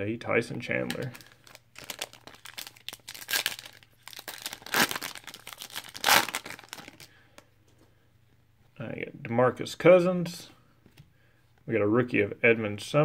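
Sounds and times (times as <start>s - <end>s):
plastic wrapper crinkling and tearing: 0.8s - 7.2s.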